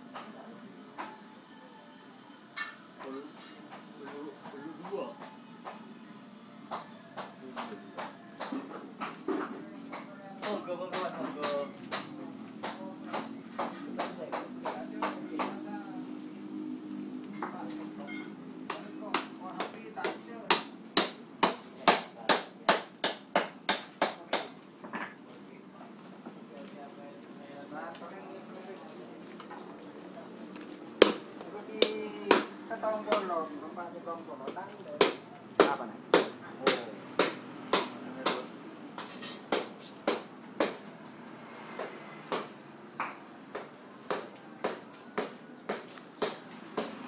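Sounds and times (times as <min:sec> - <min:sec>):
people talking: 0:09.3 - 0:16.1, 0:31.5 - 0:37.0
footsteps walking: 0:44.8 - 0:46.8.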